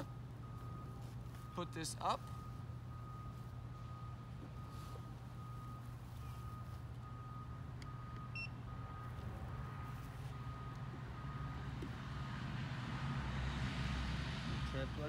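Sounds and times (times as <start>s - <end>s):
high reversing beep: 0.0s - 9.1s
low vehicle rumble: 0.0s - 15.0s.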